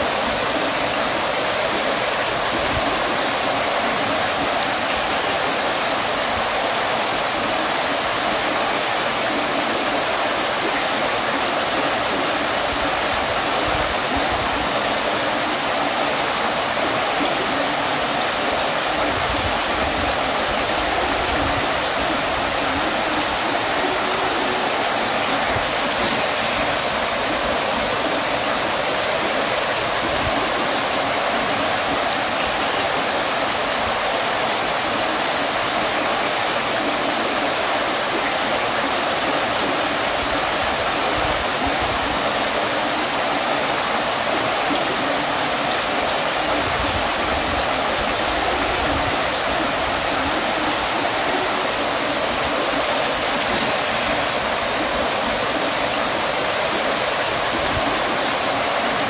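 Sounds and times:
fountain water splashing: 0:00.0 - 0:59.0.

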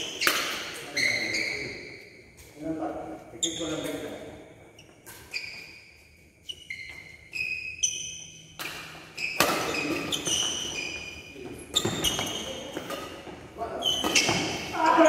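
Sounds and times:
racket hitting shuttlecock: 0:00.0 - 0:00.8, 0:08.5 - 0:10.8, 0:11.8 - 0:13.4
shoes squeaking on court floor: 0:00.0 - 0:02.7, 0:03.3 - 0:15.0.

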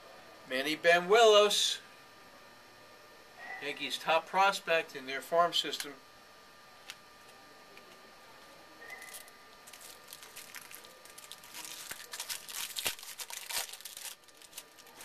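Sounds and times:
foil wrapper tearing and crinkling: 0:08.9 - 0:15.0.

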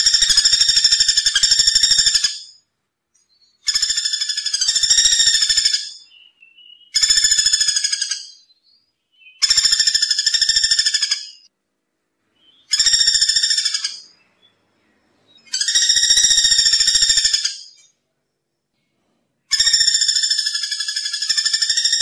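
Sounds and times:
woodpecker rattle call: 0:00.0 - 0:02.6, 0:03.6 - 0:08.4, 0:09.2 - 0:11.5, 0:12.6 - 0:14.2, 0:15.5 - 0:17.9, 0:19.5 - 0:22.0.

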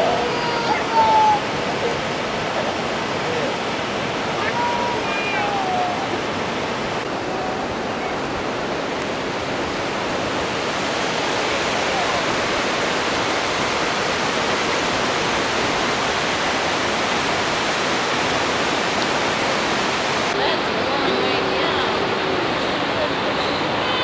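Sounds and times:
river rushing over rocks: 0:00.0 - 0:24.0.

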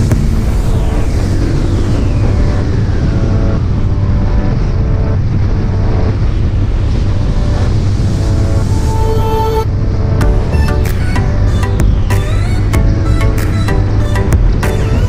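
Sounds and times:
wind rushing over microphone: 0:00.0 - 0:13.6.

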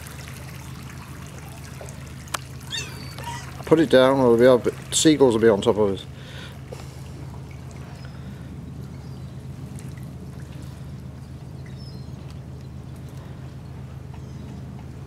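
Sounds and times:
water dripping and trickling: 0:00.0 - 0:05.8, 0:06.4 - 0:13.3
small splashes: 0:00.0 - 0:11.8
steady low hum: 0:00.0 - 0:15.0.

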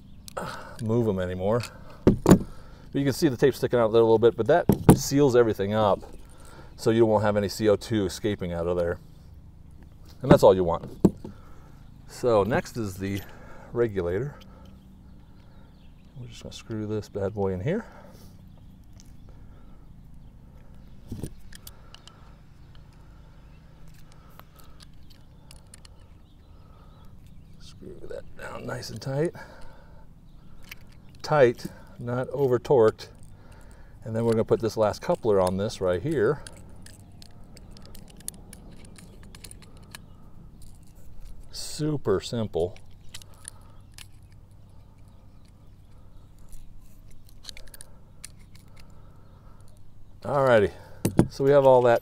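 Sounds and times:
low background rumble: 0:00.0 - 0:52.0
dull thump: 0:02.0 - 0:02.6, 0:04.7 - 0:05.1
wrench metallic clicks and scrapes: 0:20.7 - 0:23.0, 0:23.8 - 0:26.2, 0:30.4 - 0:32.0, 0:32.6 - 0:52.0
metal pipe fittings clicking: 0:33.2 - 0:41.8.

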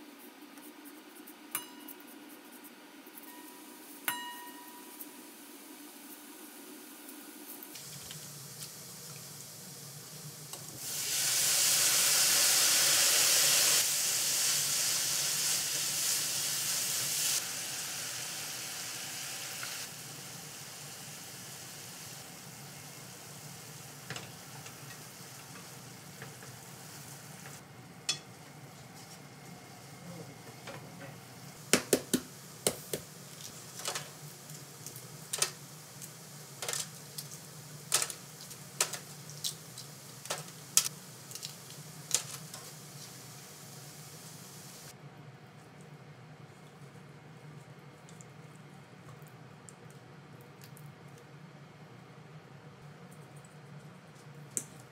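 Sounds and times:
vegetables sizzling in a frying pan: 0:07.4 - 0:28.4, 0:29.0 - 0:44.9.

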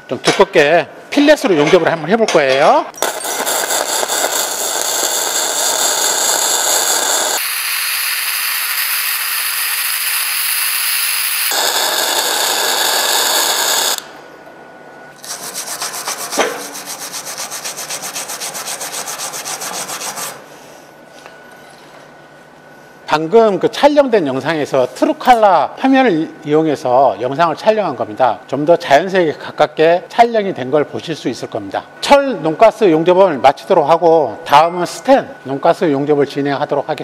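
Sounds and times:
welding arc crackling: 0:02.9 - 0:14.1.

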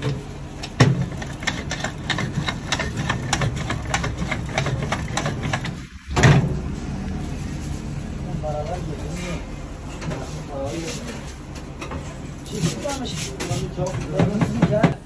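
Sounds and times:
low kitchen hum: 0:00.0 - 0:15.0.

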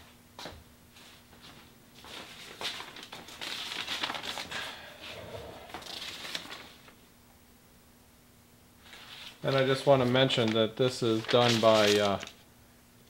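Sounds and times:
rustling and scraping: 0:08.8 - 0:12.4.

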